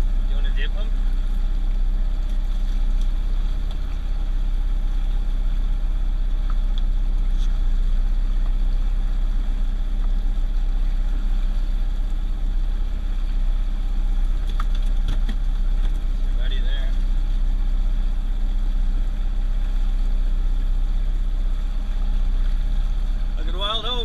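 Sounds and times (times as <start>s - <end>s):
outboard motor droning: 0.0s - 24.0s.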